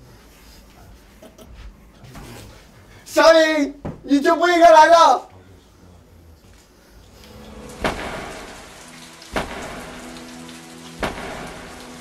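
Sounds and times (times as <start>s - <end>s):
held chord background music: 7.0s - 12.0s
rain: 7.0s - 12.0s
thunder cracks: 7.3s - 12.0s.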